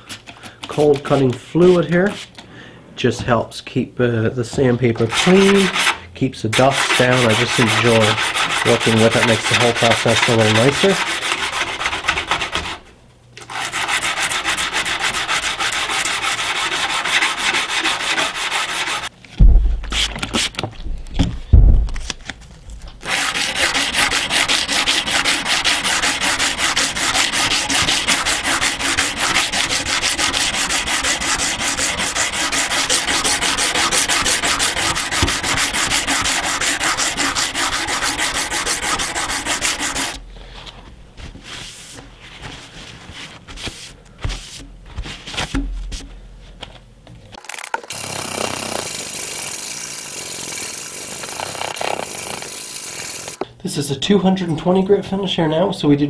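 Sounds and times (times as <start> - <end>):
sandpaper scraping on steel: 5.0 - 6.0, 6.6 - 12.8, 13.4 - 19.1, 23.0 - 40.2, 47.9 - 53.4
loud heavy thumps: 19.4 - 22.1.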